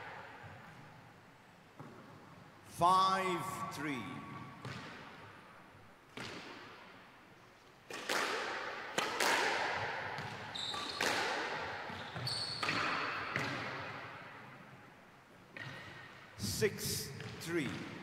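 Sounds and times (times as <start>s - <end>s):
squash ball hits: 6.1s - 6.7s, 7.9s - 13.9s
shoes squeaking on wooden floor: 10.5s - 11.0s, 11.9s - 12.7s.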